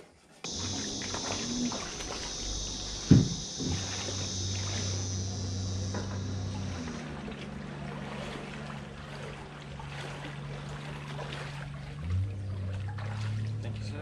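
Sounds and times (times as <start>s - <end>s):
low steady drone: 0.5s - 9.8s
water sloshing and trickling: 0.5s - 14.0s.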